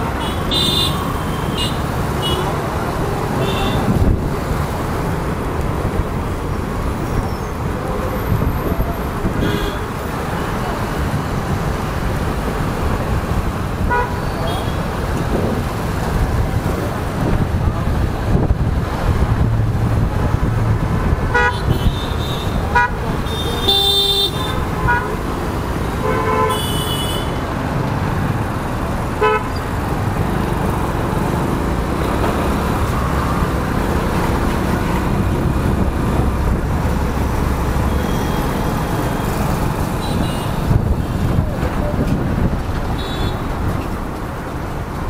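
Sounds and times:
road and wind rush: 0.0 - 45.0
vehicle horn toots: 21.3 - 25.1, 26.0 - 27.4, 29.2 - 29.5.

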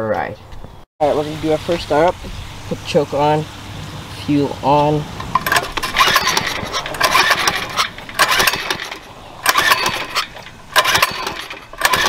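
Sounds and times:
engine cranking: 4.8 - 12.0
recoil cord pulls: 5.2 - 12.0.

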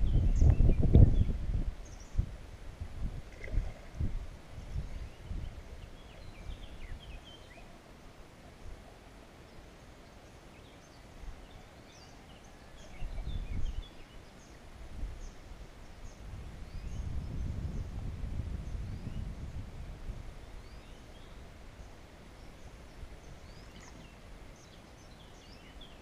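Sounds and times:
low rumbling on microphone: 0.0 - 7.3, 14.7 - 22.0
small birds chirping: 20.5 - 26.0.

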